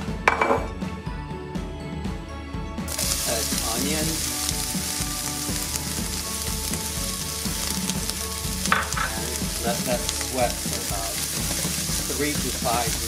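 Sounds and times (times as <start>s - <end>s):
onion sizzling in oil: 2.9s - 13.0s.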